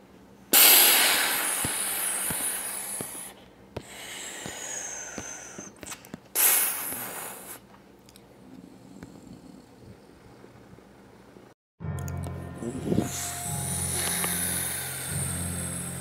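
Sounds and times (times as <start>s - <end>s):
hissing bursts: 0.5s - 3.4s.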